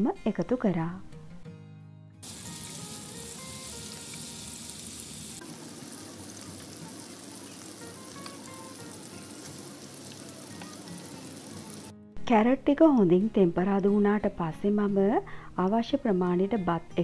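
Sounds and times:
vegetables sizzling in oil: 2.2 - 11.9.

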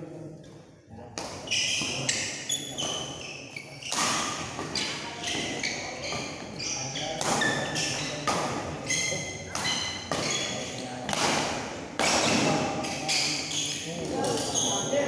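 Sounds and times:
shoes squeaking on court: 1.4 - 10.8, 12.1 - 15.0.

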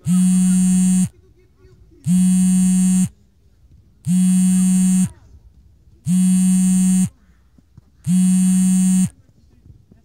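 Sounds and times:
timer buzzer harsh low buzz: 0.0 - 1.2, 2.0 - 3.1, 4.1 - 5.2, 6.1 - 7.2, 8.0 - 9.2.

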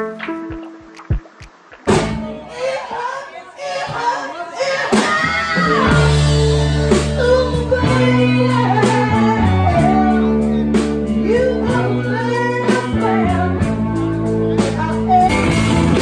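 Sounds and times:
drum kit hits: 0.0 - 2.5
electric bass line: 0.0 - 2.6, 5.8 - 16.0
electric guitar: 0.0 - 2.8, 5.2 - 16.0.

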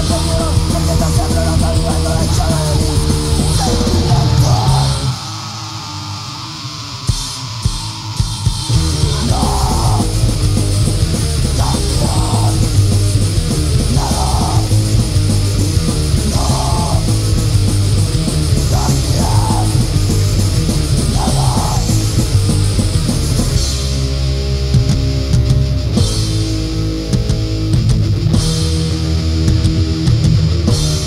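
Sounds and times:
shouted vocal phrases: 0.0 - 6.5, 8.8 - 10.2, 11.5 - 12.7, 13.9 - 14.8, 16.3 - 17.2, 18.6 - 19.8, 21.1 - 22.0
punk rock band: 0.0 - 31.0.

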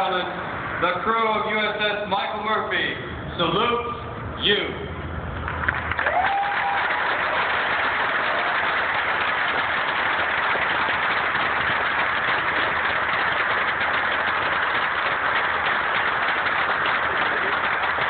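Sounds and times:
crowd applauding: 5.4 - 18.0.

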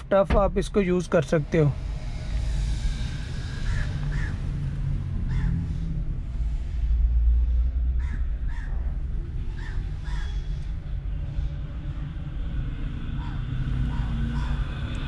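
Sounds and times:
steady low rumble: 0.0 - 15.0
crows cawing: 3.7 - 4.4, 5.3 - 5.6, 8.0 - 8.8, 9.6 - 10.4.

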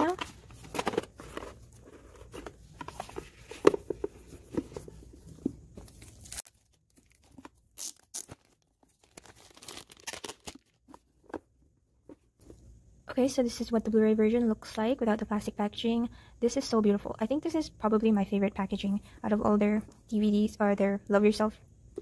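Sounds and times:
plastic wrap crinkling and tearing: 5.9 - 10.8.

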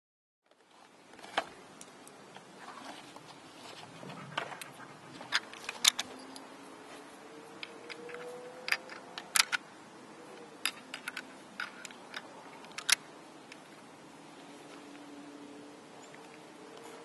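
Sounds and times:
rifle bolt clicks and clacks: 4.4 - 6.2, 7.6 - 9.6, 10.6 - 13.6
cartridges loaded into rifle: 4.6 - 6.5, 7.6 - 9.6, 10.6 - 13.6.

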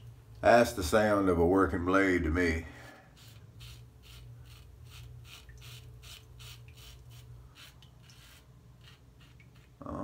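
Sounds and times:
razor scraping stubble: 3.1 - 10.0.

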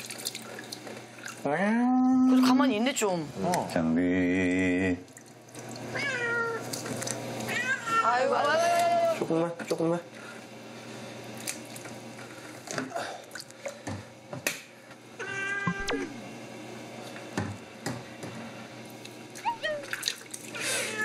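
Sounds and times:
cat meowing in distress: 6.0 - 6.7, 7.5 - 9.2, 15.2 - 16.1, 20.6 - 21.0.

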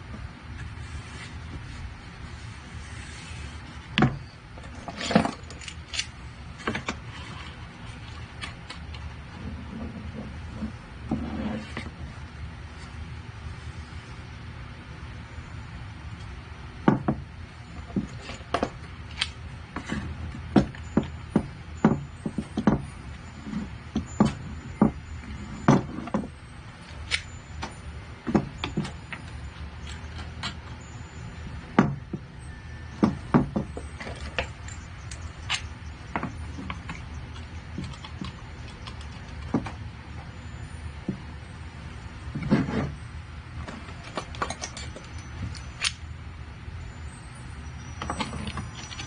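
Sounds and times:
steady low hum: 0.0 - 49.0
wooden and metal parts knocking: 16.8 - 17.2, 17.8 - 26.4, 27.0 - 30.8, 31.7 - 39.8, 43.6 - 46.0, 48.0 - 49.0.

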